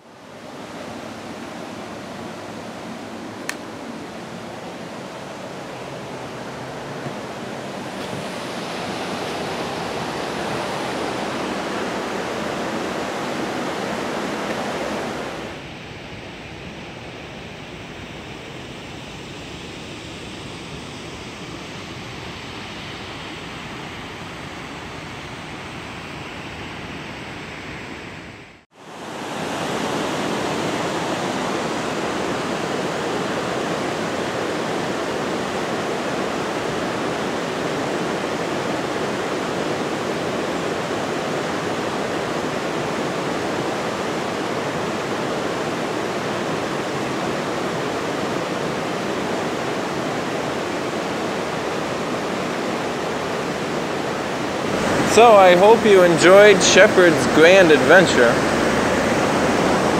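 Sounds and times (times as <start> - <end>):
waterfall rushing: 0.0 - 15.6, 28.8 - 59.9
whitewater rapids rushing: 0.0 - 15.6, 28.8 - 59.9.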